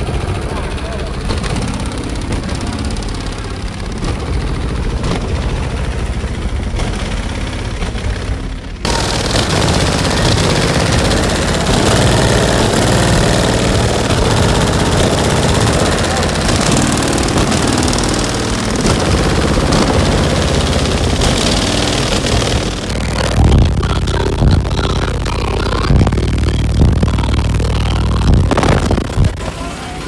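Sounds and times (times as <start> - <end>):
bass-heavy music from subwoofers: 22.9 - 29.5.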